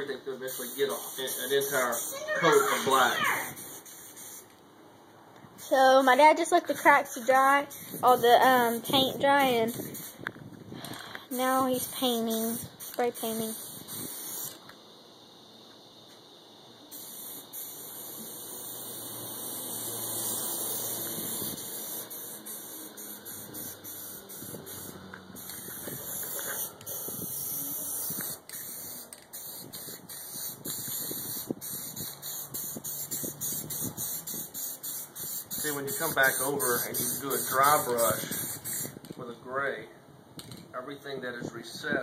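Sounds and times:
spray-paint can hissing: 0.5 - 4.6, 5.6 - 10.3, 11.3 - 14.8, 16.9 - 39.2.

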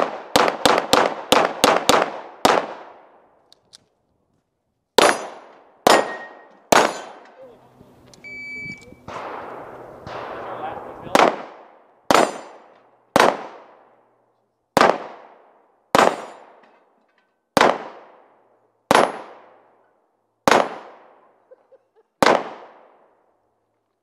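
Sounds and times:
pistol shots echoing: 0.0 - 3.2, 5.0 - 7.4, 9.0 - 14.0, 14.7 - 16.6, 17.6 - 19.7, 20.4 - 21.3, 22.2 - 23.1.

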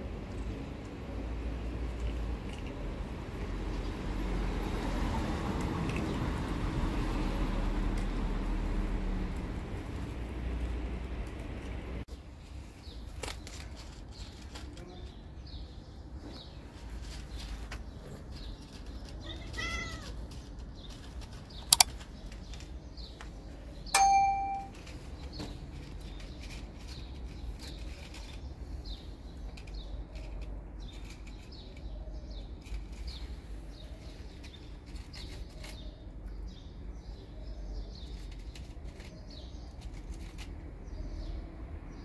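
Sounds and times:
cat meowing: 19.2 - 20.2.

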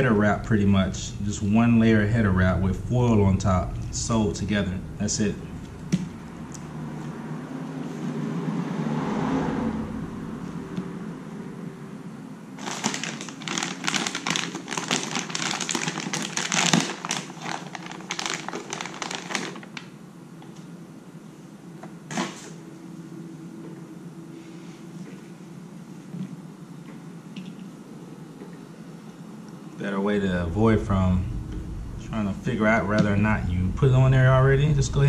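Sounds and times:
steady low hum: 0.0 - 12.6, 14.2 - 35.0
foil crinkling and rustling: 12.6 - 19.8.

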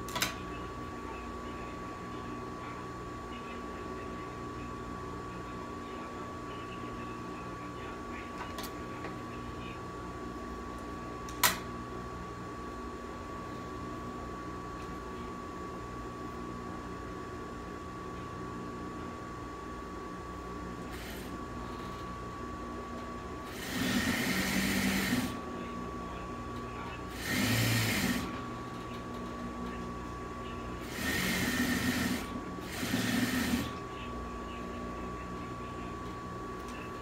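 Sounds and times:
steady machine hum: 0.0 - 37.0
sewing machine stitching: 23.5 - 25.4, 27.1 - 28.3, 30.8 - 33.8.

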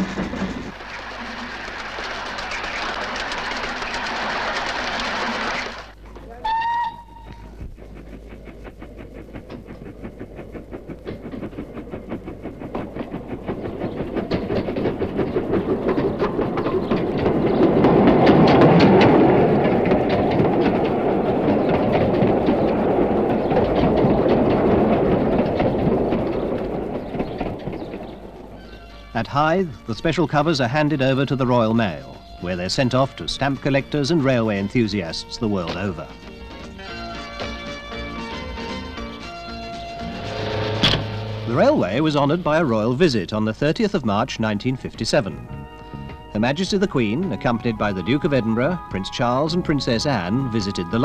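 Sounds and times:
rhythmic exhaust and wheels: 0.0 - 51.0
steam locomotive whistle: 6.3 - 7.6, 47.3 - 51.0.

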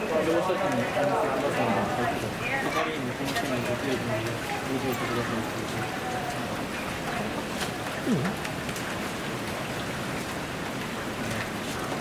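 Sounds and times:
faint voices: 0.0 - 8.6
dipping voice-like sound: 8.0 - 8.5.

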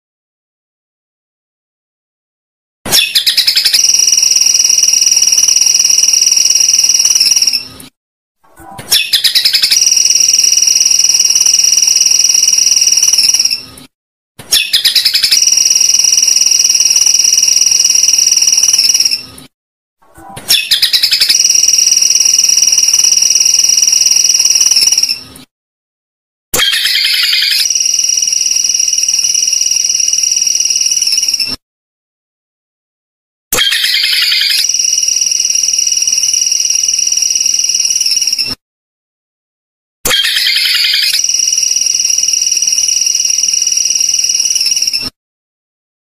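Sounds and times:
high buzzing bird trill: 3.0 - 7.7, 9.0 - 13.7, 14.6 - 19.3, 20.5 - 25.2, 26.6 - 31.6, 33.6 - 38.6, 40.2 - 45.1.

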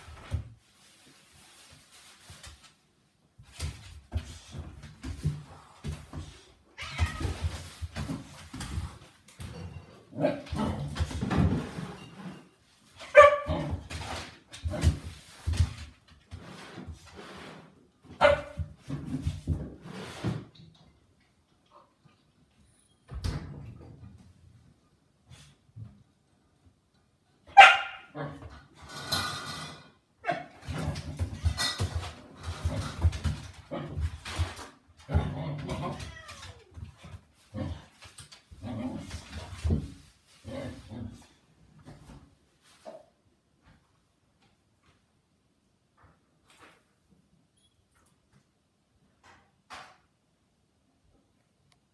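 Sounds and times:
dog barking: 13.1 - 13.7, 18.2 - 18.6, 27.5 - 28.2.

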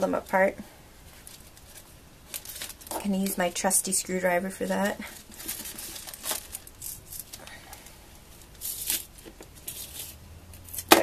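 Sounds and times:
cardboard tearing: 5.2 - 7.4, 8.6 - 11.0.

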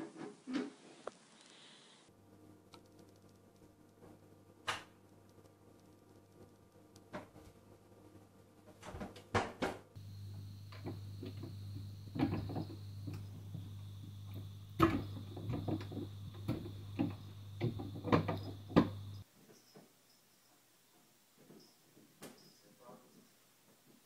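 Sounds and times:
steady low hum: 10.0 - 19.3.

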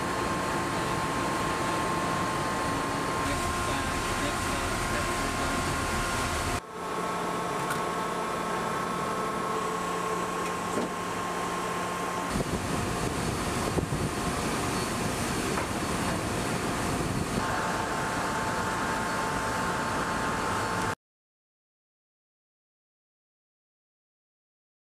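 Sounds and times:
sea: 0.0 - 20.9
machinery hum: 0.0 - 21.0
steady tones: 3.2 - 6.6
rushing wind: 12.3 - 17.8.

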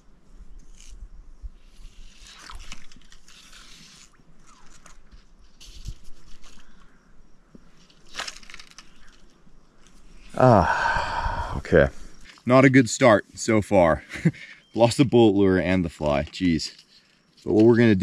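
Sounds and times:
fly line swishing: 1.6 - 6.8.

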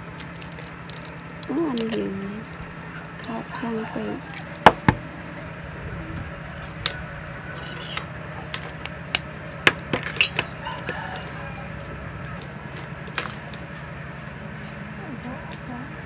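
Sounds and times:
eggshells cracking: 0.0 - 2.6
steady low hum: 0.0 - 16.0
chickens clucking: 2.8 - 9.1, 10.2 - 12.5.

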